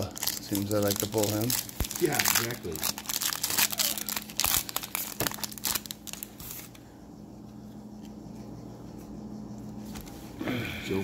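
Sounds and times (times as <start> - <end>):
foil wrapper tearing and crinkling: 0.0 - 6.8
faint low hum: 0.0 - 11.0.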